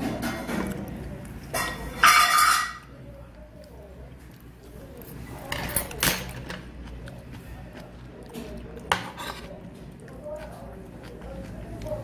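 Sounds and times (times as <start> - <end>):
metal spoon scraping ceramic plate: 8.9 - 9.5.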